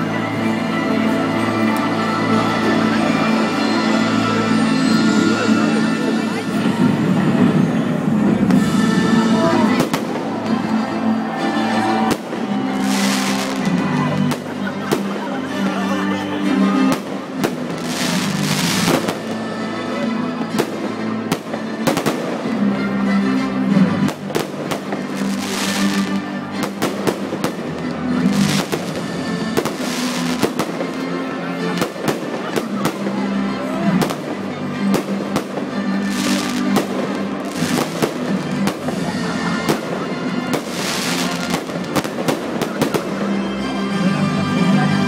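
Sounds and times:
music playing: 0:00.0 - 0:45.0
fireworks crackling and hissing: 0:11.6 - 0:16.2, 0:16.8 - 0:22.7, 0:24.0 - 0:43.4
fireworks bangs: 0:11.7 - 0:15.4, 0:16.8 - 0:19.4, 0:24.0 - 0:31.0, 0:33.9 - 0:43.2.

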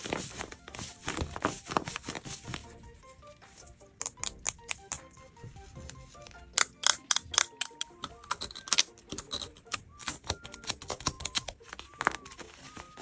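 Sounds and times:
paper crinkling and clicking: 0:00.0 - 0:02.8, 0:05.9 - 0:13.0
soft background music: 0:00.0 - 0:13.0.

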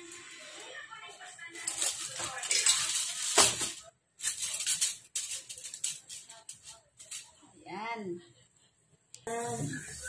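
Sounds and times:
aluminium foil crinkling: 0:00.4 - 0:07.4.

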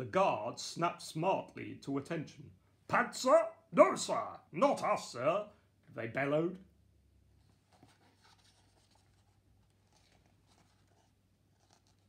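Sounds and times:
soft scrapes: 0:07.3 - 0:12.0
paper rustling: 0:07.4 - 0:12.0.

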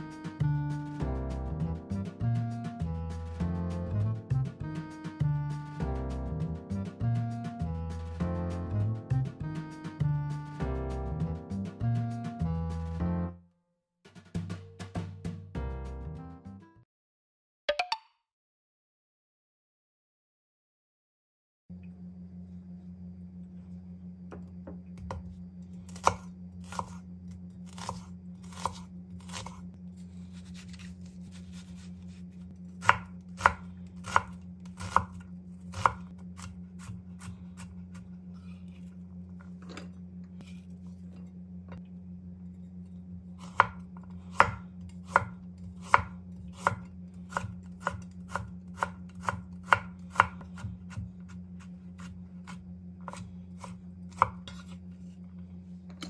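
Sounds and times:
steady low hum: 0:21.7 - 0:56.0
knife chopping on wooden board: 0:25.9 - 0:27.0, 0:27.7 - 0:29.6, 0:32.8 - 0:38.0, 0:43.4 - 0:55.1.

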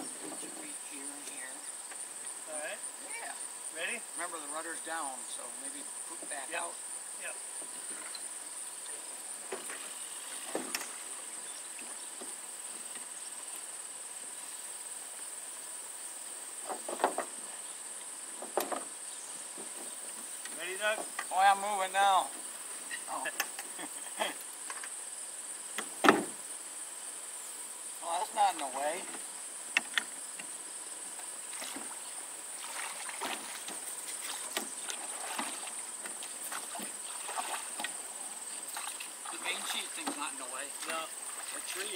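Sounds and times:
crickets chirring: 0:00.0 - 0:41.9
oars knocking and splashing: 0:08.9 - 0:13.1, 0:31.5 - 0:41.9.

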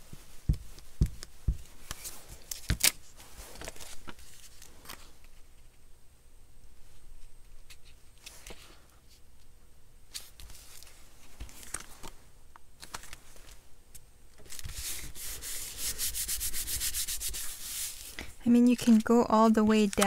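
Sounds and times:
paper rustling: 0:00.8 - 0:05.4, 0:10.1 - 0:12.2, 0:12.8 - 0:13.6, 0:14.4 - 0:20.0
hand rubbing over paper: 0:14.7 - 0:20.0.

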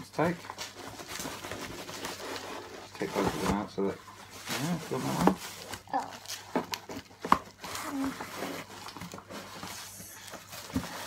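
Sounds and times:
bubble wrap and cardboard rustling: 0:00.0 - 0:11.0.

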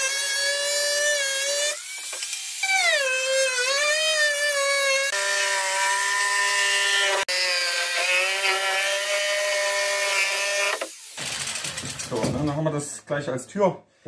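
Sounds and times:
angle grinder cutting plywood: 0:00.0 - 0:11.9.

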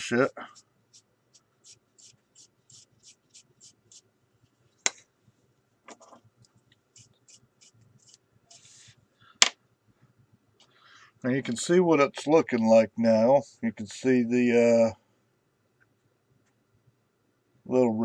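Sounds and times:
tool and brush scratching plastic: 0:00.0 - 0:04.1.

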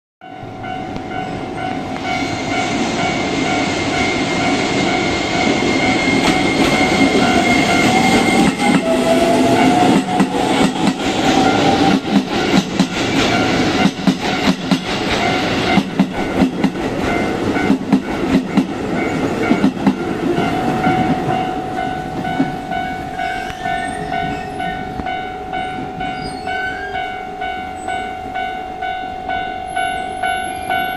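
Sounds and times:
electric train passing: 0:00.2 - 0:30.9
level crossing warning alarm: 0:00.2 - 0:30.9
whine of train motors: 0:00.6 - 0:16.4.

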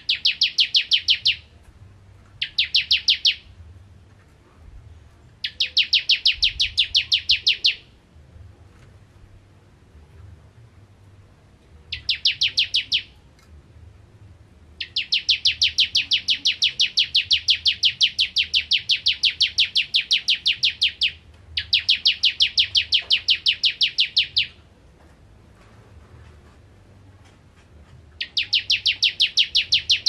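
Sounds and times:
bird singing fast high notes: 0:11.9 - 0:13.2.

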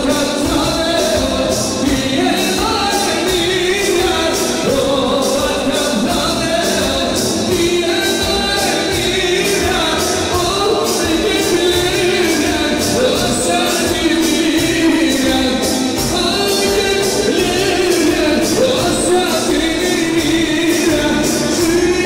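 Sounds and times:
live band music with singer: 0:00.0 - 0:22.0.

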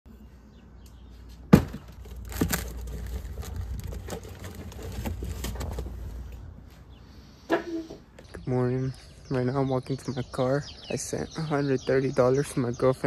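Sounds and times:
containers rattling in refrigerator: 0:01.6 - 0:06.0.

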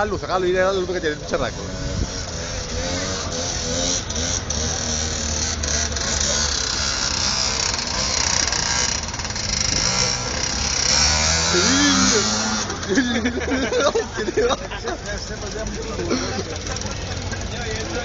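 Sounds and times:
small motor buzzing: 0:01.7 - 0:12.9.

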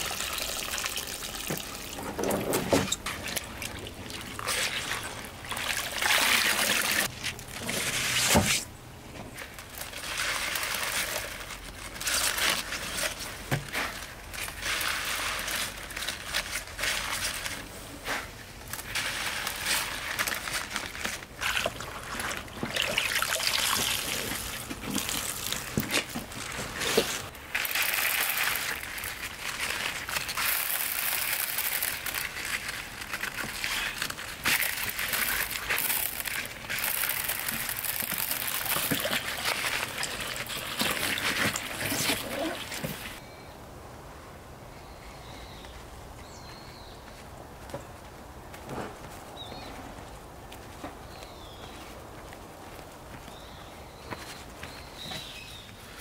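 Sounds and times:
water splashes: 0:00.0 - 0:07.6, 0:21.4 - 0:25.8
water sloshing and trickling: 0:00.0 - 0:08.4, 0:18.8 - 0:43.2.

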